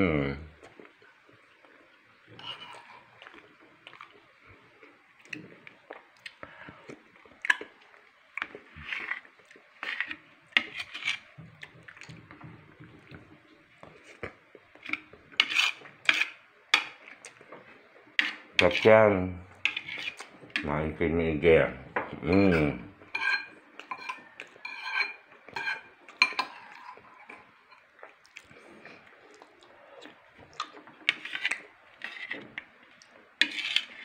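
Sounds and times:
spoon clinking against ceramic bowl: 22.3s - 26.9s.

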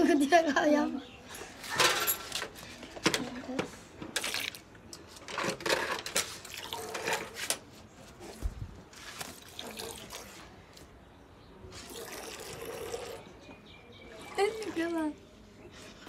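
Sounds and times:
milk squirting into bucket: 6.4s - 7.4s, 9.0s - 10.5s, 11.8s - 13.3s.

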